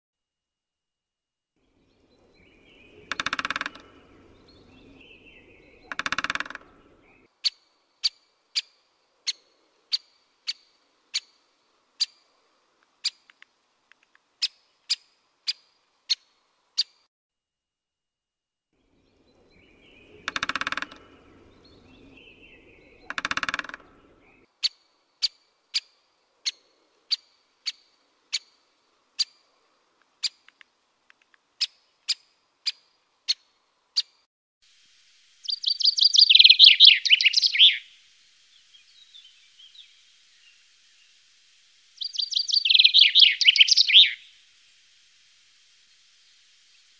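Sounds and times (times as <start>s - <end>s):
woodpecker harsh notes and clicks: 2.9s - 9.4s, 19.4s - 25.9s.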